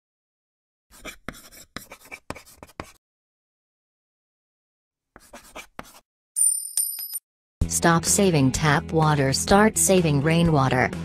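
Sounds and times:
marker scratching on a board: 0.9 - 3.0, 5.2 - 6.0.

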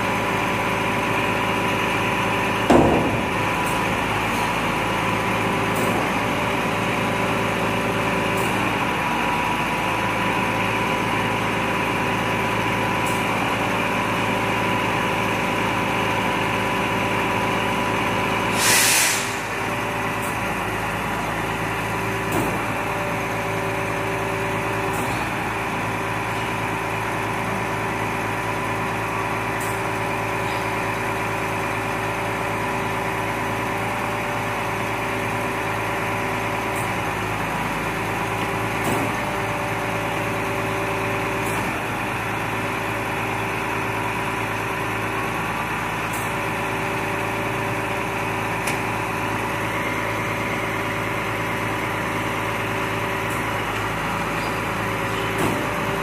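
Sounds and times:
truck diesel engine idling: 0.0 - 56.0
air brake hiss: 18.5 - 19.6.

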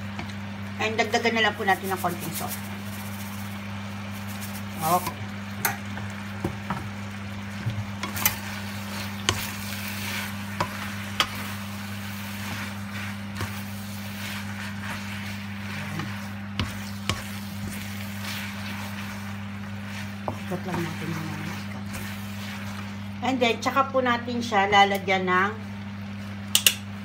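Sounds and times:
food sizzling in frying pan: 0.0 - 24.8
steady low hum: 0.0 - 27.0
spatula tapping pan: 10.5 - 11.6, 12.5 - 22.8.

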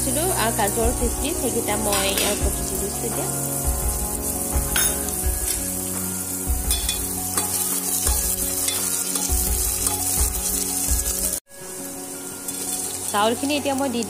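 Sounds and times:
vegetables sizzling in oil: 0.0 - 14.0.

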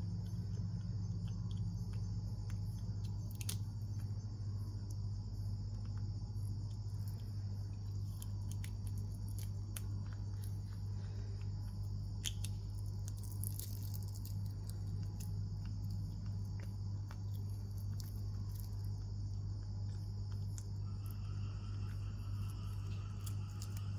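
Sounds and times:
insect shell crackling as chewed: 0.0 - 23.9
steady low hum: 0.0 - 23.9.

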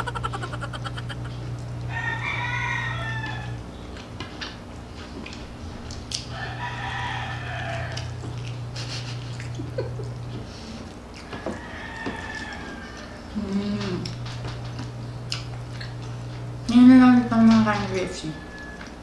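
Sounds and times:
long animal calls: 0.0 - 2.2
steady low hum: 0.0 - 11.3, 13.0 - 19.0.

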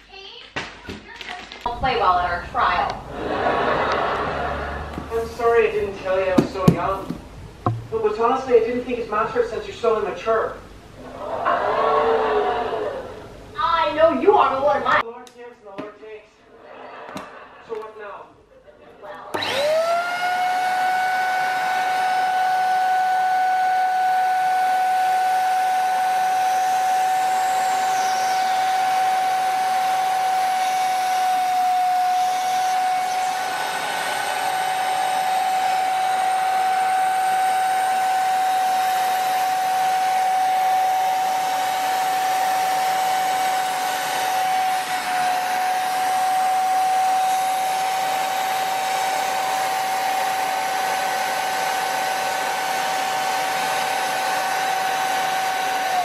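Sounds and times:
vacuum cleaner whine: 1.8 - 7.8, 19.3 - 56.0.

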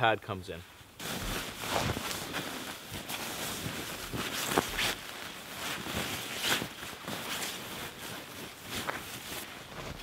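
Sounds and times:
nylon sleeping bag rustling: 0.7 - 10.0.

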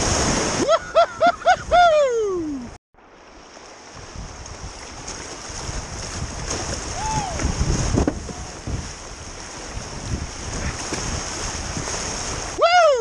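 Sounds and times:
person whooping: 1.6 - 2.7, 6.9 - 7.5, 12.6 - 13.0
river water rushing: 3.0 - 13.0.

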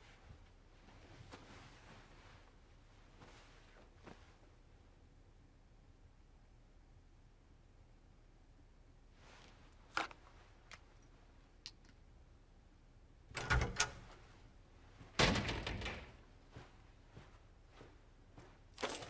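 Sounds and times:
door clicks: 13.3 - 14.3, 15.2 - 16.2
door rattling: 13.3 - 14.3, 15.2 - 16.3
door thudding shut: 13.4 - 14.2, 15.2 - 16.2.

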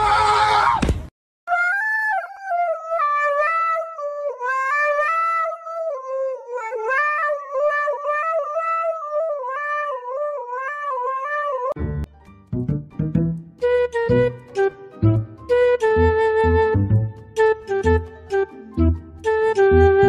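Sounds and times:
dog howling into microphone: 4.4 - 11.8.

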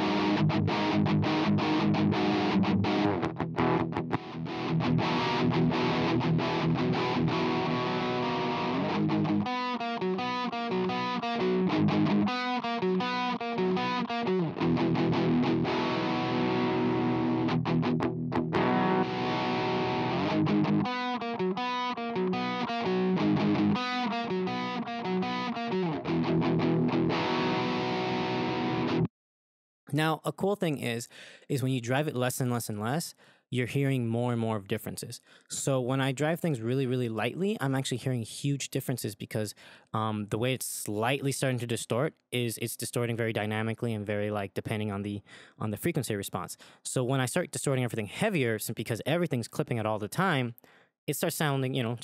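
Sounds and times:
distorted electric guitar riff: 0.0 - 29.1.

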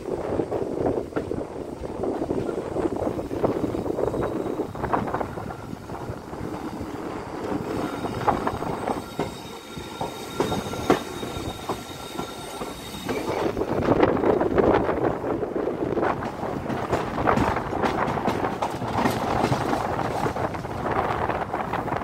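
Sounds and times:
train wheels clicking over rail joints: 2.1 - 21.5
thin wheel squeal: 7.7 - 13.6.

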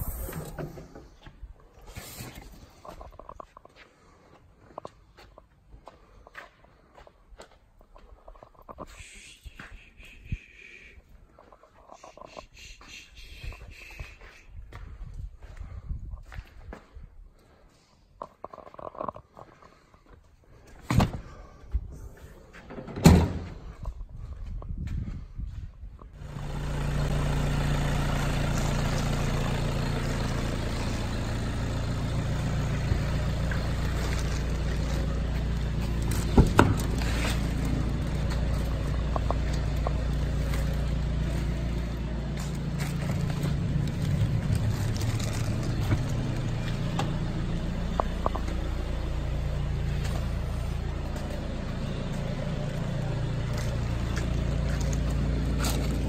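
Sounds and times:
car engine idling: 26.2 - 56.0.

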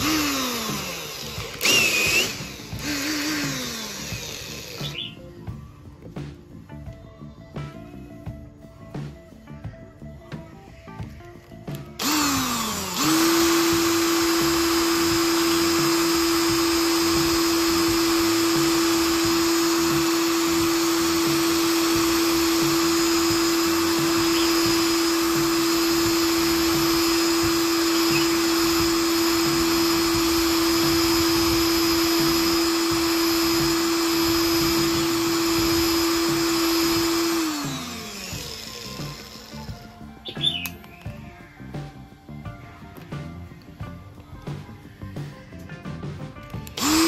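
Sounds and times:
electric drill whining: 0.0 - 5.3, 11.7 - 41.2, 46.6 - 47.0.

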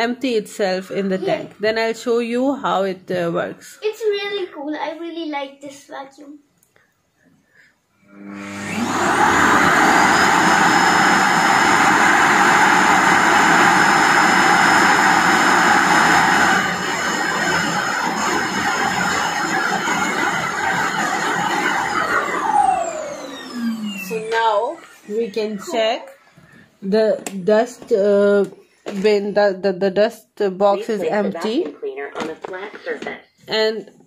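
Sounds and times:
suction motor whining: 8.0 - 26.0.

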